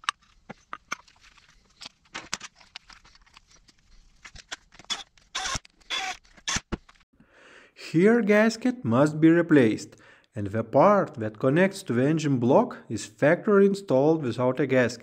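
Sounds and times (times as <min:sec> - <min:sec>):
oil pump parts clicking: 0:00.0 - 0:07.0.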